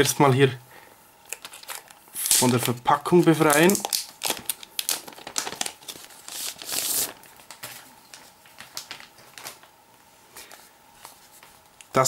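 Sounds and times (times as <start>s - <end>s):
plastic film crinkling: 1.2s - 9.8s.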